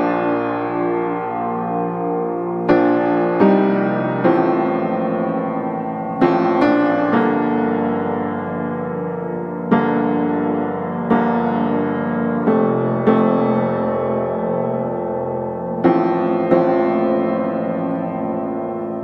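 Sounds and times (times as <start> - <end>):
slow piano chords: 0.0 - 19.0.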